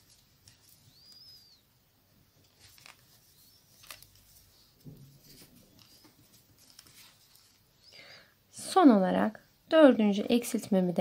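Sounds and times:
faint high chirps: 0.8 - 1.7.

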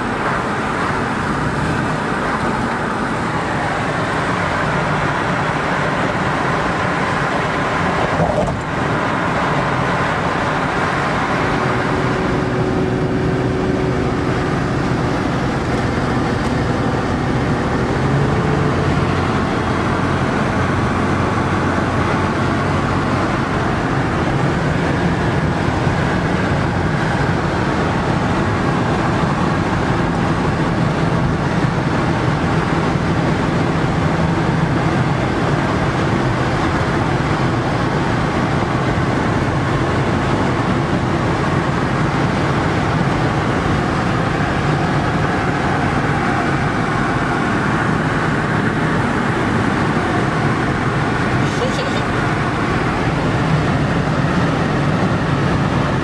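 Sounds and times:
car driving heard from inside: 0.0 - 56.0.

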